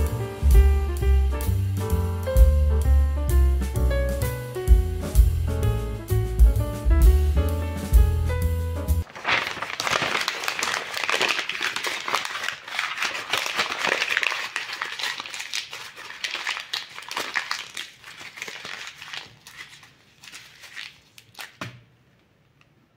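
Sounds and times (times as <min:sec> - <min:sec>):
paper crumpling: 0:09.0 - 0:21.8.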